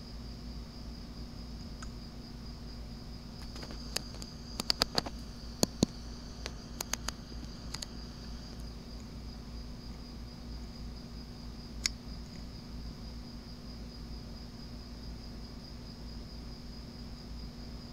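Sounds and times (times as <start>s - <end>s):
crickets chirping: 0.0s - 17.9s
sharp clicks and ticks: 3.4s - 7.9s.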